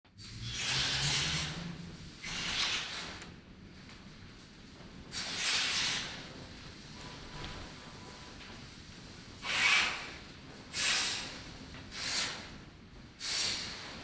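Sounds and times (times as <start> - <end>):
short puffs of hissing noise: 5.1 - 6.3, 9.4 - 12.6, 13.2 - 14.0.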